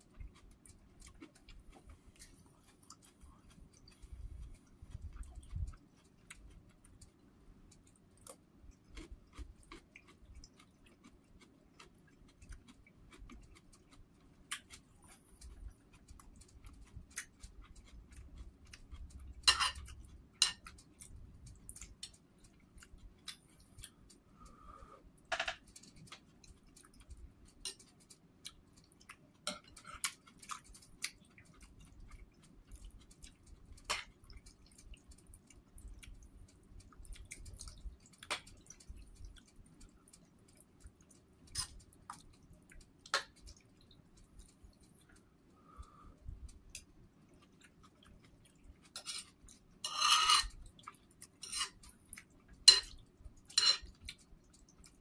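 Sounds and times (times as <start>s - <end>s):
chewing soft porridge: 0.0s - 55.0s
metal spoon clinking on bowl: 19.4s - 20.6s, 49.8s - 50.5s, 52.7s - 53.0s, 53.6s - 53.9s.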